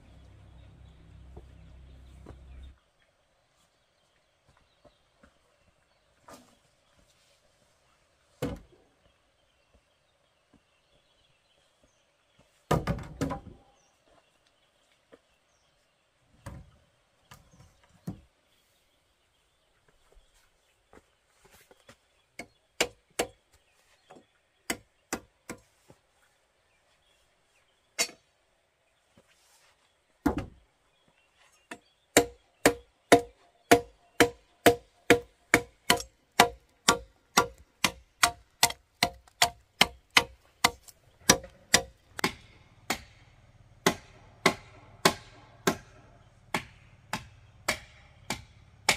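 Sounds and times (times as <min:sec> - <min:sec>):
machete chopping wood: 0:32.2 - 0:43.2, 0:43.8 - 0:48.9.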